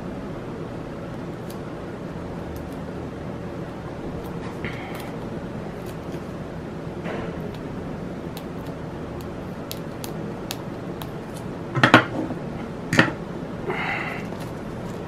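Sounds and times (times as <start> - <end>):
blade scratching plastic wrap: 4.2 - 6.3
plastic wrap rustling: 14.2 - 15.0.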